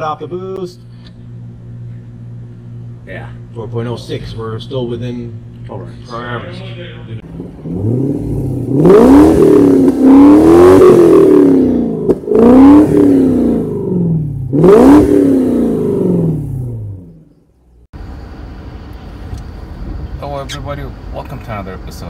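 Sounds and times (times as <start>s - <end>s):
car engine revving: 6.8s - 17.4s.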